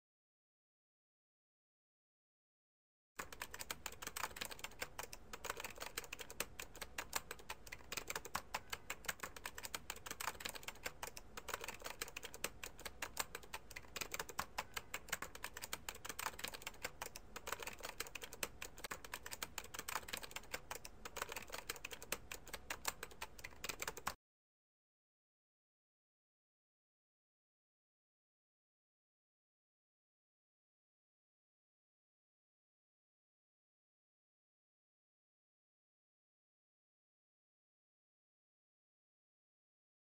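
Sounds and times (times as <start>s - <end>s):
fast keyboard typing: 3.2s - 24.2s.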